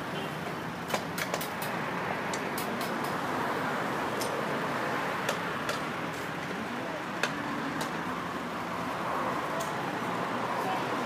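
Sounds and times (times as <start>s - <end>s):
sharp clicks and taps: 0.9s - 3.2s, 7.2s - 8.0s.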